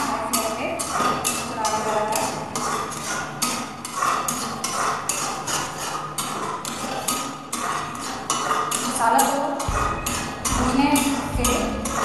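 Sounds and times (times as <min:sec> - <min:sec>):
spatula scraping steel pan: 0:00.0 - 0:12.0
paste frying: 0:00.8 - 0:09.0.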